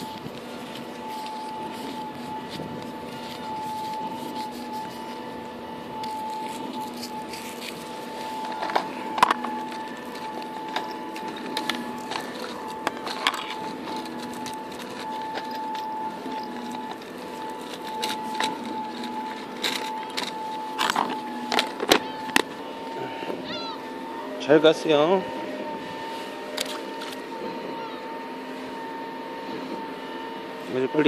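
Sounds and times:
steady mechanical hum: 0.0s - 31.0s
measuring tape and gear clicking: 8.4s - 22.0s.

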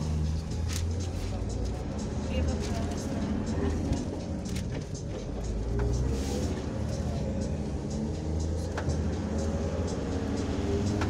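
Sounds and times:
engine low rumble: 0.0s - 11.0s.

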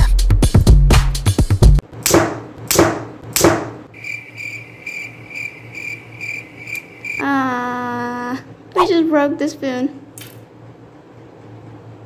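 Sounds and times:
cricket chirping effect: 3.9s - 7.2s.

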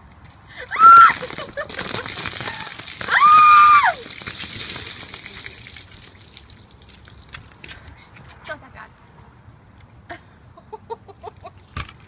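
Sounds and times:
woman shrieking: 0.6s - 1.2s, 3.0s - 4.0s
water dripping: 0.7s - 8.0s, 8.9s - 9.9s
water pouring and splashing: 0.7s - 9.6s.

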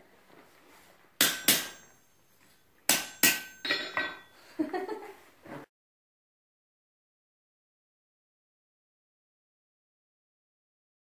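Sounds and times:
hammer striking metal on anvil: 1.2s - 4.3s.

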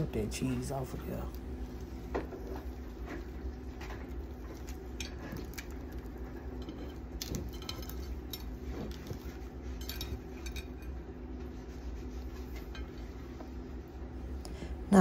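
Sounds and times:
tortilla rustling: 0.2s - 14.4s.

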